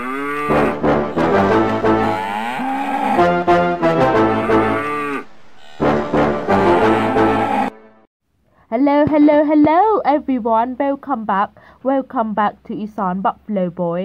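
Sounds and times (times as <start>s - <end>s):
mooing calls: 0.0s - 8.0s
brass-like jingle music: 0.5s - 2.2s, 3.2s - 4.8s, 5.7s - 8.1s.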